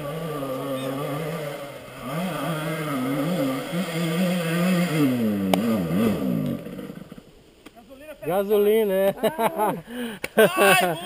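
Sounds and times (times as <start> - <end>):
dirt bike engine revving: 0.0 - 7.2.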